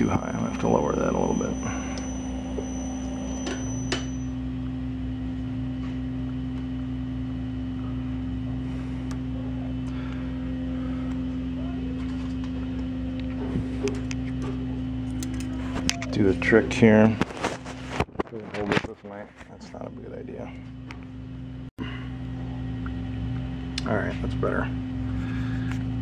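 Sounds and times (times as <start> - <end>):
lathe motor humming: 0.0 - 16.4.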